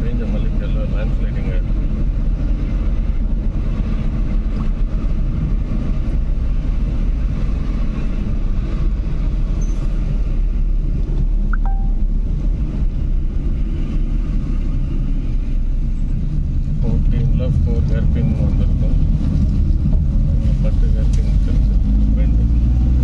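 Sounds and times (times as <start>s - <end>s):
car engine and road noise: 0.0s - 23.0s
short high tone: 11.5s - 12.2s.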